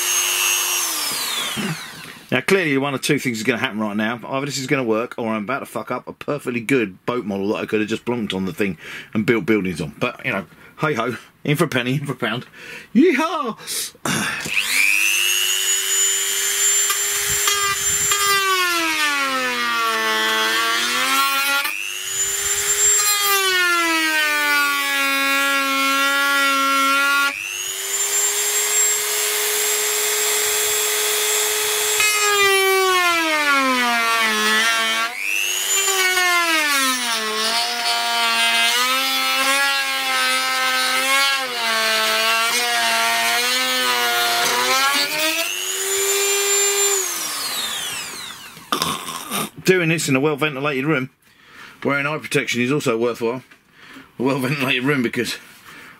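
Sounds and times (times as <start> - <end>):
rotary tool cutting plastic: 0.0 - 2.3, 14.4 - 49.5.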